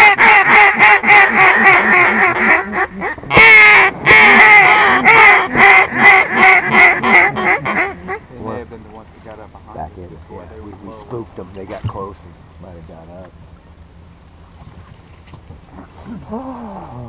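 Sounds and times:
duck call quacks: 0.0 - 8.2.

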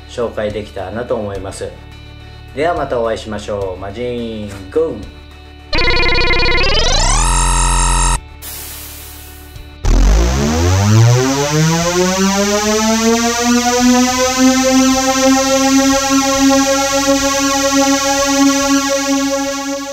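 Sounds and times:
synthesized tone sweeping up: 5.8 - 8.2, 9.8 - 19.9.

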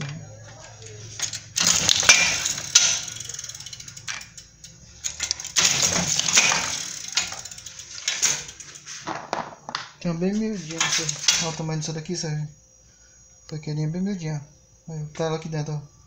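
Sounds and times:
nut cutting machine clicking: 1.2 - 8.6.

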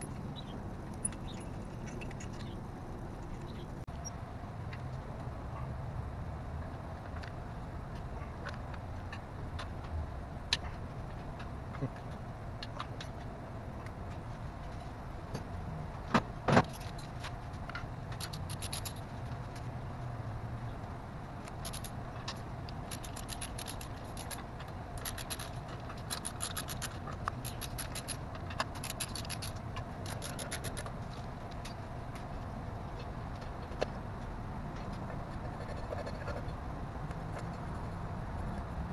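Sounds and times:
rapid clicking and rattling: 18.1 - 19.1, 21.5 - 31.0.

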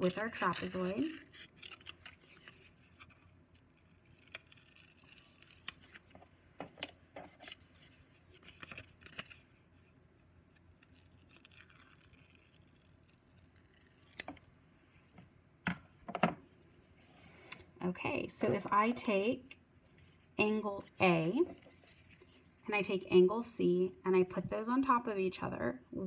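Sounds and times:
scissors snipping paper: 0.0 - 6.0
paper rustling: 19.9 - 22.6.

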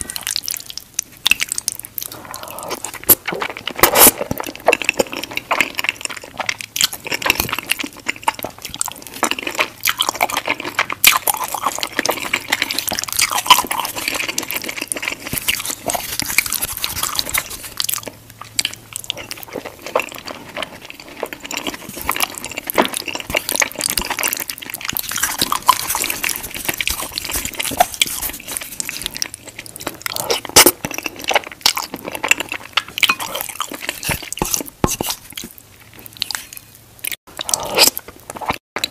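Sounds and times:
wet chewing mouth sounds: 0.0 - 38.9.

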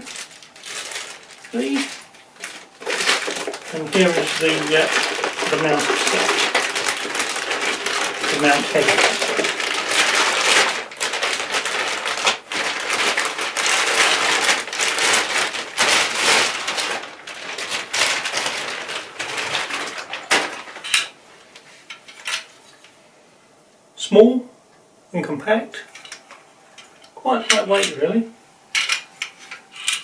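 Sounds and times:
plastic wrapping crinkling: 0.0 - 22.9.

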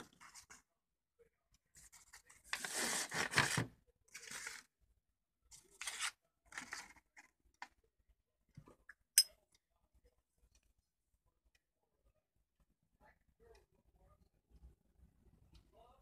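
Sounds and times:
paper rustling and crinkling: 1.8 - 4.7, 5.6 - 7.3.

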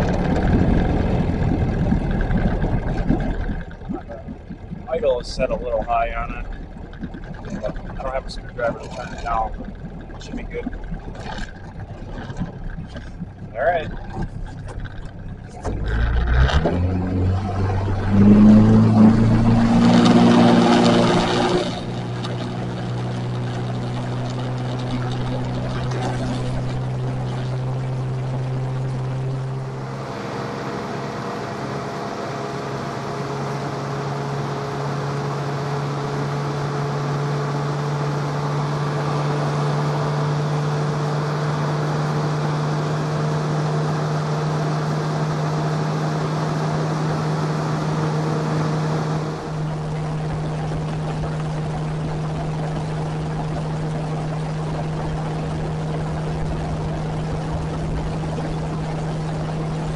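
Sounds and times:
outboard engine running: 0.0 - 59.9
water rushing along hull: 0.0 - 59.9.

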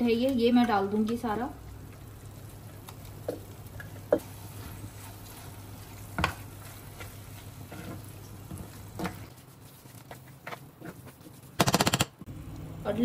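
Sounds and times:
spoon stirring thick mixture: 3.3 - 11.6.

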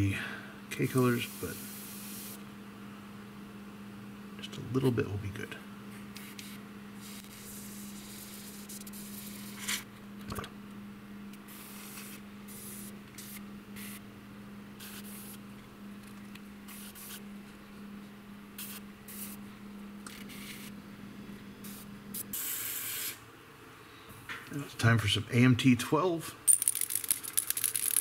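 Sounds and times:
steady low hum: 0.0 - 28.0
airbrush spraying paint: 1.1 - 2.4, 6.2 - 9.7, 11.5 - 14.0, 14.8 - 15.4, 16.7 - 17.2, 18.6 - 19.4, 20.2 - 20.7, 21.6 - 23.2.

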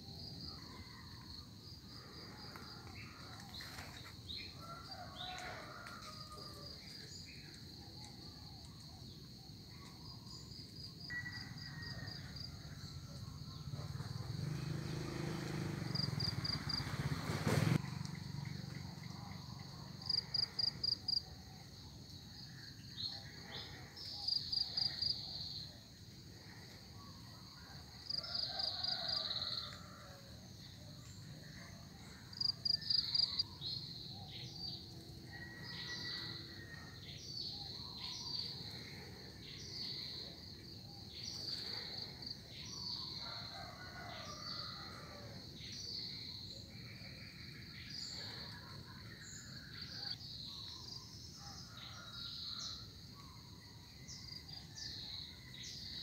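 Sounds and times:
insects chirping: 0.0 - 56.0.

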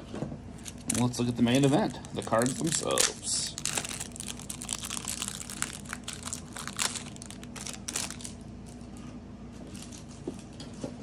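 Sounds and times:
packaging crinkling: 0.6 - 9.0.

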